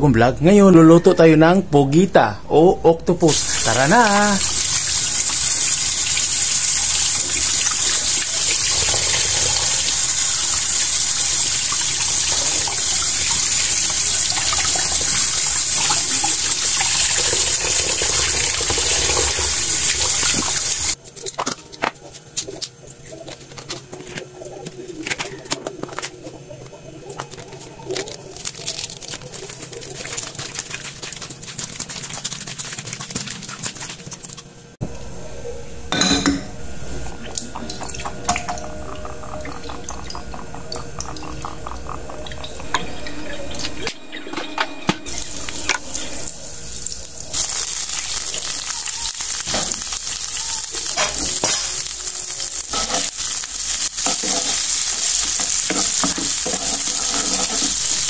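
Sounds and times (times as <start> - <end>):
tap water running into sink: 3.4 - 21.0
wet handling noises: 21.0 - 34.6.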